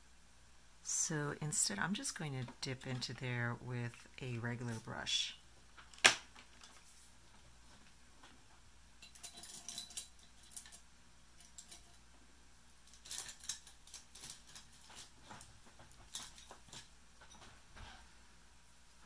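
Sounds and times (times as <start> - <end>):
painting tools clicking and clinking: 9.0 - 12.0, 12.8 - 17.5.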